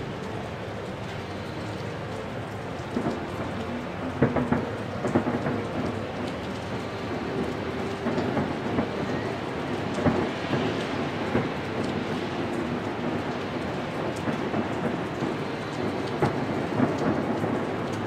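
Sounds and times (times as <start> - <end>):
fireworks crackling: 0.5 - 18.0
fireworks booms: 4.2 - 6.0, 9.8 - 11.9, 12.9 - 17.8.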